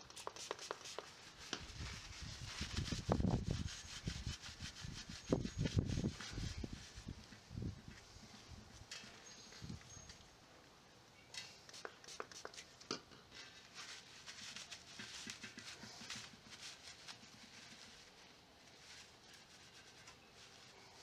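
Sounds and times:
cloth rubbing on metal rim: 0.0s - 8.8s, 13.5s - 21.0s.

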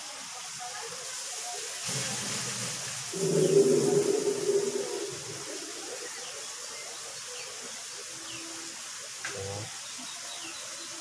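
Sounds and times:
steady hiss: 0.0s - 11.0s
small birds chirping: 3.2s - 8.6s, 9.6s - 11.0s.

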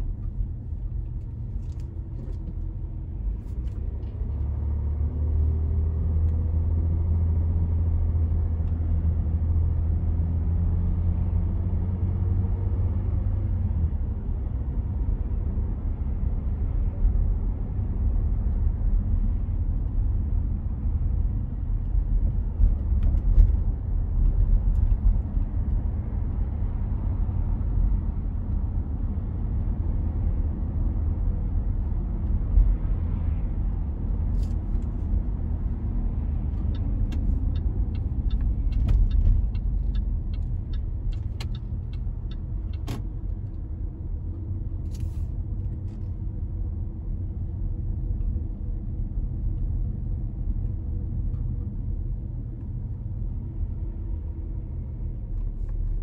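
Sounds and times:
car engine and tyre rumble: 0.0s - 56.0s
light ticks: 36.5s - 42.9s.

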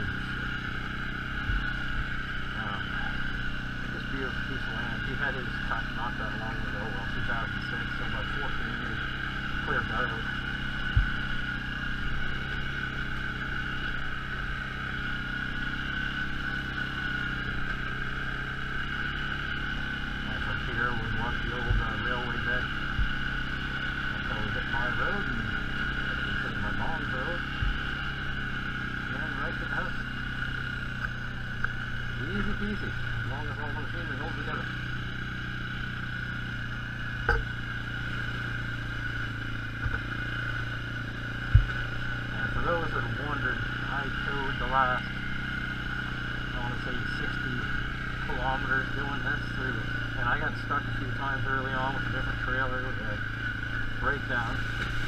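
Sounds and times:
atv engine running: 0.0s - 55.0s
high whine: 0.0s - 55.0s
thumps on microphone: 37.2s - 37.6s, 39.8s - 40.1s, 41.5s - 41.8s.

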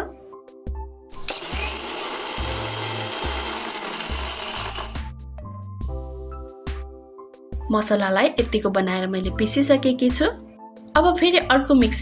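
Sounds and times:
electric grinder grinding spices: 1.2s - 5.1s.

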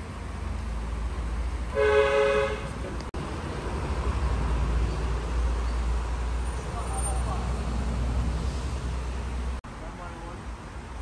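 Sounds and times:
two-tone car horn honk: 1.7s - 2.7s.

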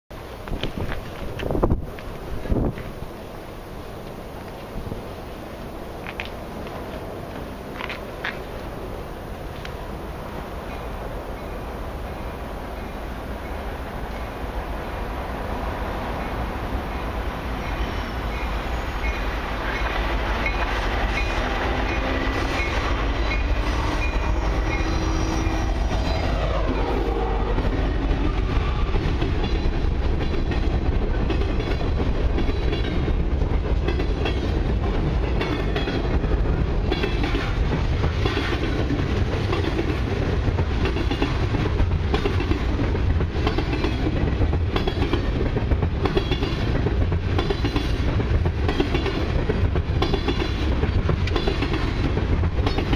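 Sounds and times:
diesel locomotive engines passing: 0.1s - 52.9s
freight cars rumbling: 0.1s - 52.9s
wheels clacking over rail joints: 6.0s - 8.8s, 16.2s - 52.9s.

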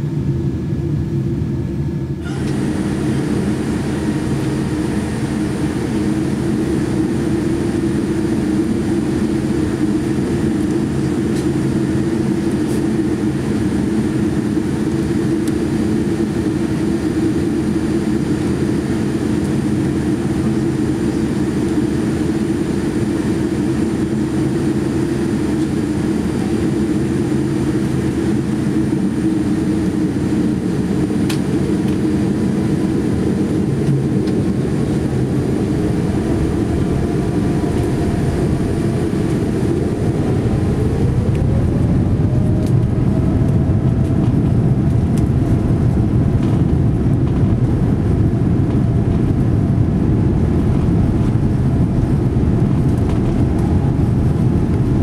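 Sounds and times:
airliner cabin engine rumble: 0.0s - 55.0s
rising tone: 35.1s - 44.4s.

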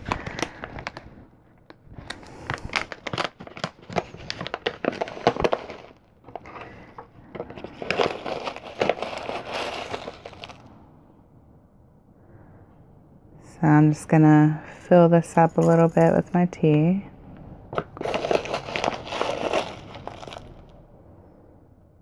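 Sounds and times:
tea packet crinkling and rustling: 0.0s - 10.7s, 17.8s - 20.7s.

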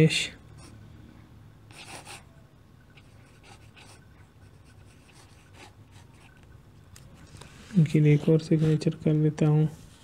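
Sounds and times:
faint low hum: 0.0s - 10.0s
pen scratching on paper: 1.7s - 2.3s, 3.0s - 6.3s.

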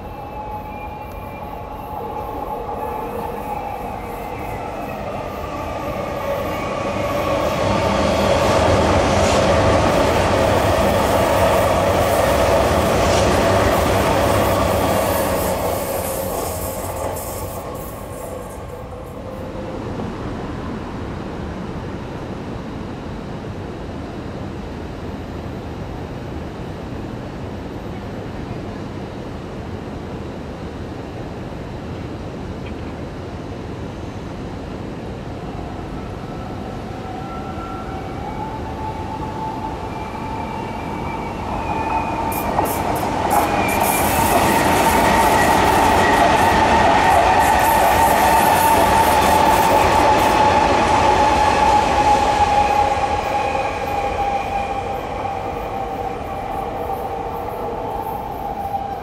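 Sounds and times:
distant rail noise: 0.0s - 59.0s
train wheel and rail noise: 0.0s - 59.0s.

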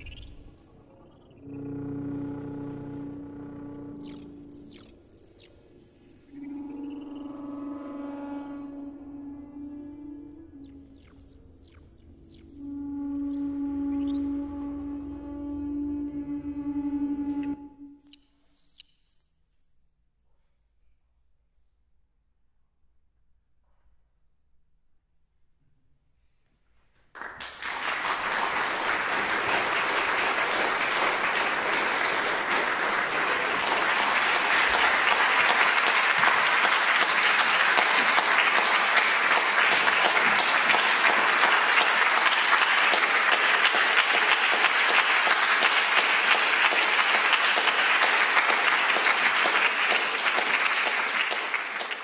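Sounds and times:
audience applause: 27.2s - 52.0s.

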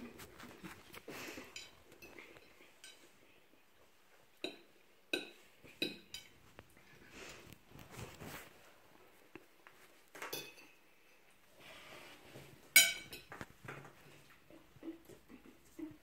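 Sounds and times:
forks clinking on plates: 1.3s - 3.1s, 10.3s - 11.2s, 12.8s - 13.4s.

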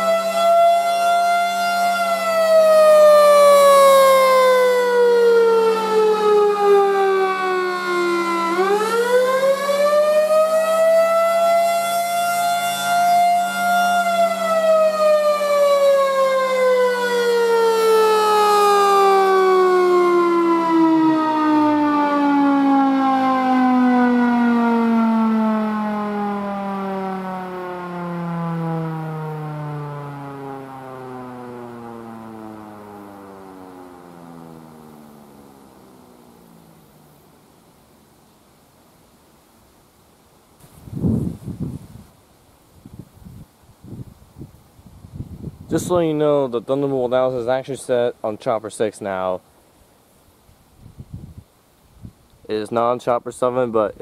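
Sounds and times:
tornado siren wailing: 0.0s - 37.2s.

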